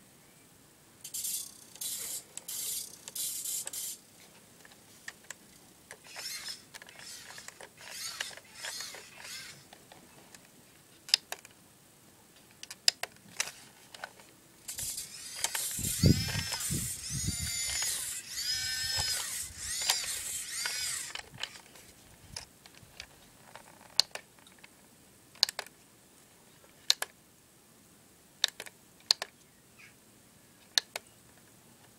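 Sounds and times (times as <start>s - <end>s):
toy electric motor whining: 1.0s - 4.0s, 6.0s - 9.7s, 14.7s - 21.7s
clicks: 4.6s - 10.5s, 12.4s - 21.6s, 25.4s - 25.7s.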